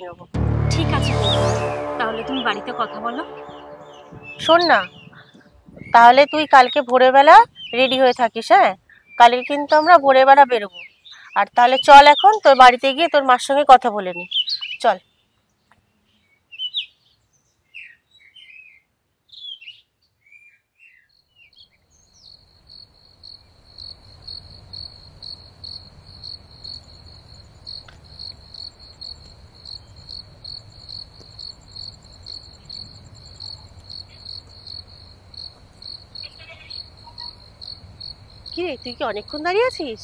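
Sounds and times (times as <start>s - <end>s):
crickets chirping: 22.0s - 40.0s.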